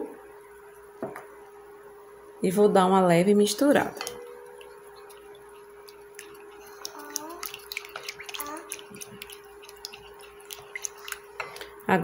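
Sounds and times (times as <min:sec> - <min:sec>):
milk swishing: 0:04.6 - 0:11.8.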